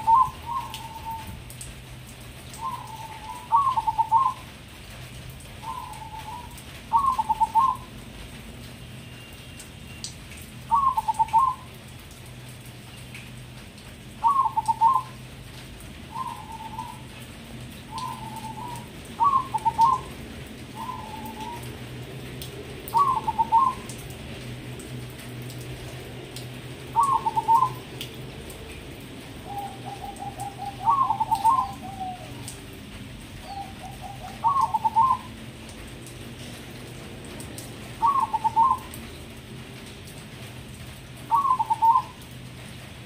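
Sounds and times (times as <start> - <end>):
dove cooing: 0.0 - 1.4, 2.6 - 4.4, 5.6 - 7.9, 10.7 - 11.7, 14.2 - 15.2, 16.1 - 17.2, 17.9 - 21.7, 22.9 - 24.0, 26.9 - 27.8, 29.4 - 32.6, 33.4 - 35.4, 38.0 - 39.0, 41.3 - 42.2.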